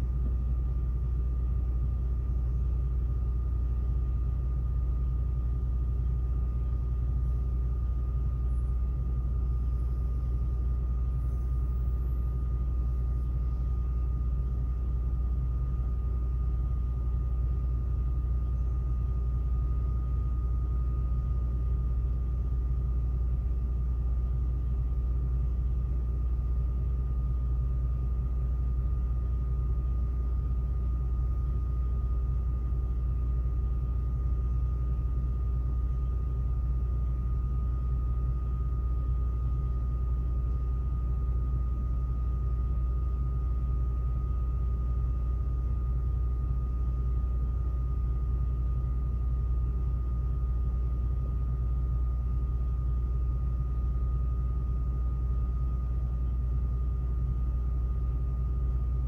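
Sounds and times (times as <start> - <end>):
faint high whine: 0.0 - 59.0.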